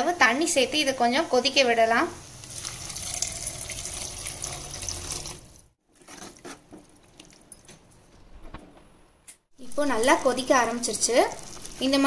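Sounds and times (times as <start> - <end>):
water pouring into pan: 2.4 - 5.7.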